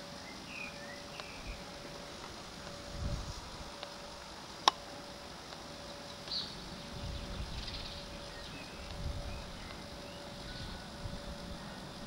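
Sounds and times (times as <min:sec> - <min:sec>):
faint bird chirps: 0:00.0 - 0:01.7, 0:05.8 - 0:12.0
low rumbling: 0:01.0 - 0:05.2, 0:05.8 - 0:12.0.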